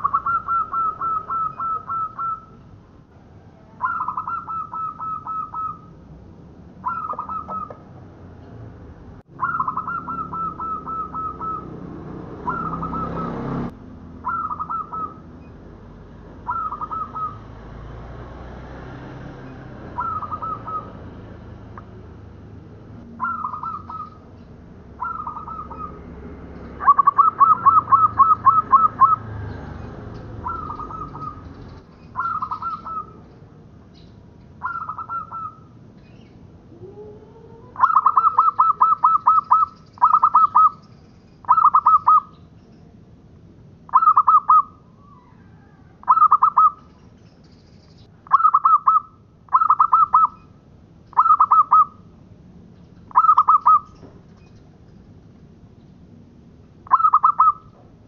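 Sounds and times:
dove cooing: 0.0 - 2.6, 3.5 - 6.0, 6.8 - 7.9, 9.3 - 15.3, 16.4 - 17.5, 19.8 - 22.0, 23.1 - 24.3, 25.0 - 26.1, 26.8 - 29.5, 30.3 - 33.3, 34.6 - 35.7, 36.7 - 40.8, 41.4 - 42.3, 43.9 - 46.9, 48.3 - 50.4, 51.2 - 52.0, 53.1 - 54.0, 56.8 - 57.8.

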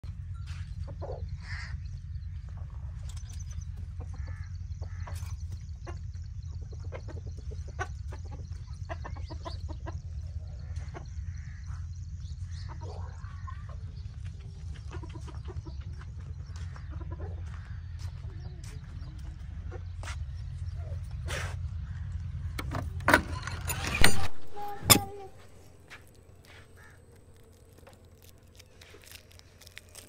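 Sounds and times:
low rumble: 0.0 - 30.0
chickens clucking: 0.5 - 23.0.

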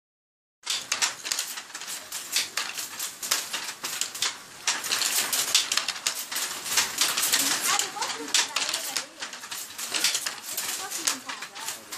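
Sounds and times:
wooden loom clacking: 0.6 - 11.9.

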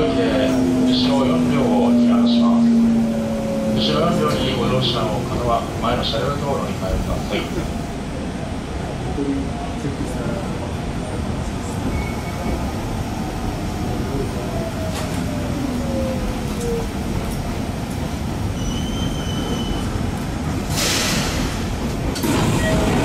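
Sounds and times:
passing train on next track: 0.0 - 23.0
train rumble: 0.0 - 23.0
air hiss: 20.7 - 21.6.

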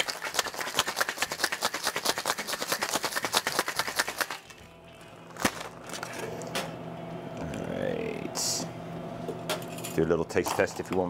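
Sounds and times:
ice rattling in cocktail shaker: 0.0 - 4.4.

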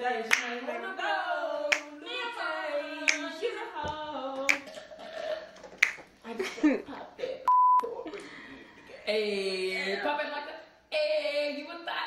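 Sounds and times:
woman singing unaccompanied: 0.0 - 4.9
hand claps keeping beat: 0.3 - 0.6, 1.7 - 2.0, 3.1 - 3.3, 5.6 - 6.1.

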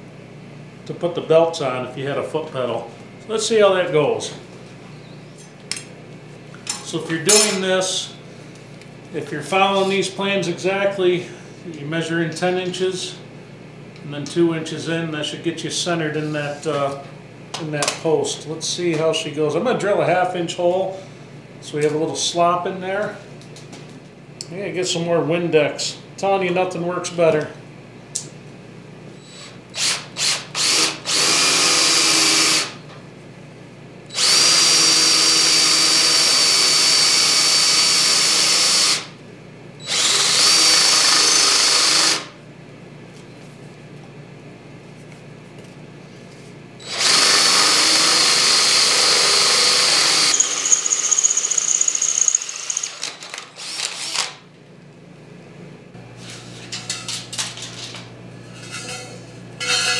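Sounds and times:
drill whining through steel: 29.2 - 32.8, 34.1 - 39.1, 39.8 - 42.3, 46.8 - 54.4
drill trigger pulls: 46.8 - 54.4.

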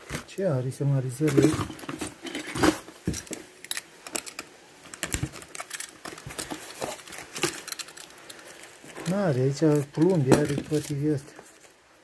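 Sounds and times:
crinkling: 0.0 - 12.0
plastic parts clicking: 2.4 - 11.0.

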